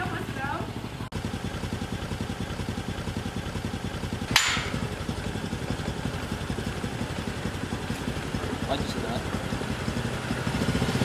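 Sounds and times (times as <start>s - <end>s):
scooter engine idling: 0.0s - 11.0s
sharp knock: 4.3s - 4.9s.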